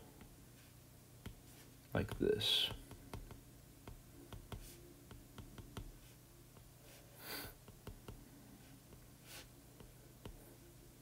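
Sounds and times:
stylus tapping on glass screen: 2.1s - 6.0s.

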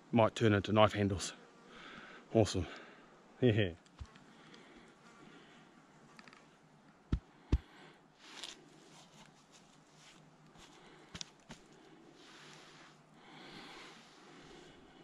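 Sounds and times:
soft rustling of animal fur: 8.2s - 15.0s.

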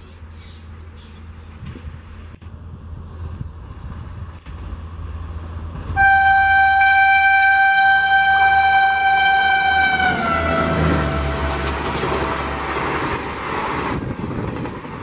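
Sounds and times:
low rumble of train: 0.0s - 15.0s
locomotive horn blast: 5.9s - 12.9s.

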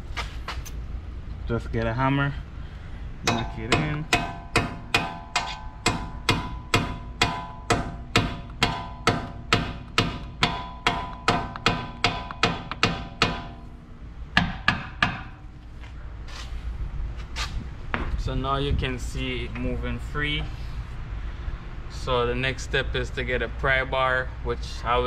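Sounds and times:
hammer striking steel punch: 3.3s - 13.7s, 14.4s - 15.4s.

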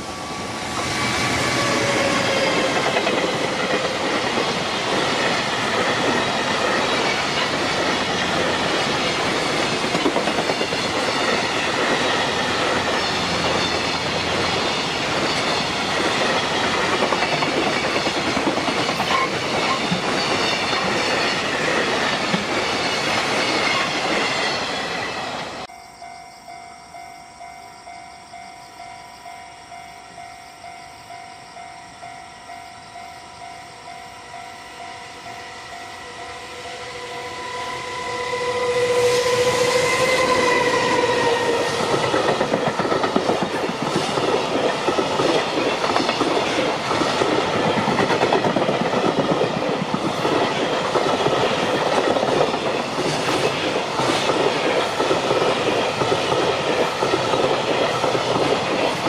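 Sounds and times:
electric locomotive passing: 0.0s - 59.0s
train wheels clattering over rail joints: 0.7s - 24.8s, 39.2s - 59.0s
level-crossing bell ringing: 25.6s - 38.5s.

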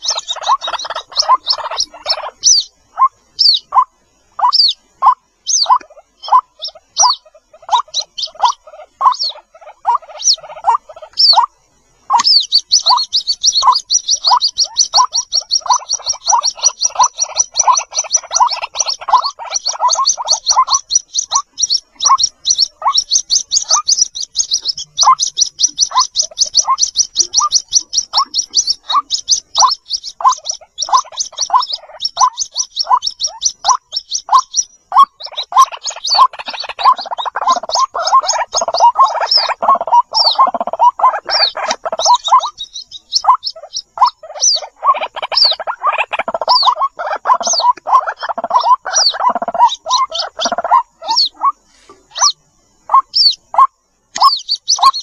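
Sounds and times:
bird chicks peeping: 0.0s - 55.0s
lower bird calls: 0.0s - 55.0s.

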